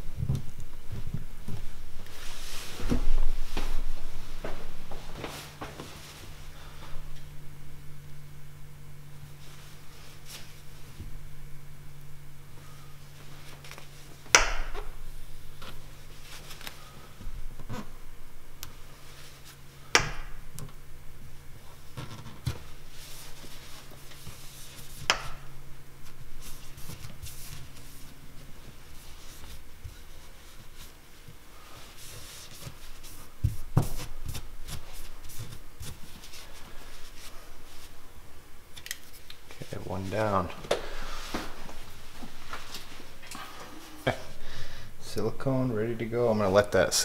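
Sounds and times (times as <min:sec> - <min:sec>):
low steady hum: 0:00.0 - 0:47.0
cloth rag rubbing: 0:02.0 - 0:06.9, 0:09.3 - 0:10.9, 0:21.6 - 0:25.1, 0:26.0 - 0:38.0, 0:41.1 - 0:44.1.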